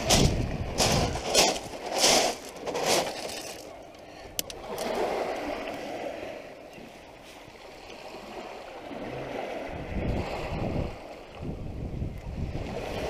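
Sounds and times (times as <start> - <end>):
footsteps on pebbles: 0.0 - 3.8.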